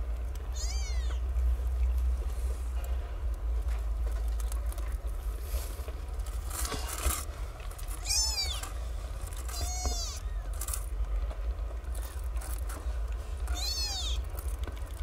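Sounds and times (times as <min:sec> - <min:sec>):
soft rustling of kittens: 0:00.0 - 0:15.0
kitten mewing: 0:00.5 - 0:01.2, 0:08.0 - 0:08.7, 0:09.5 - 0:10.5, 0:13.5 - 0:14.3.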